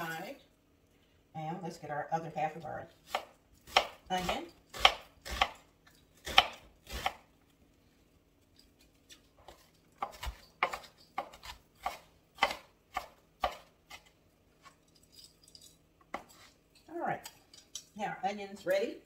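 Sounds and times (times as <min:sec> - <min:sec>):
knife chopping onion on board: 0:03.0 - 0:05.6, 0:06.2 - 0:07.2, 0:09.4 - 0:14.1.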